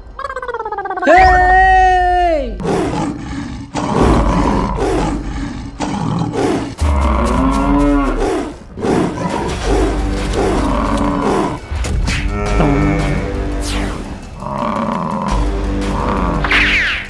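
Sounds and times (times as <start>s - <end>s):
tiger roars: 2.6s - 11.7s.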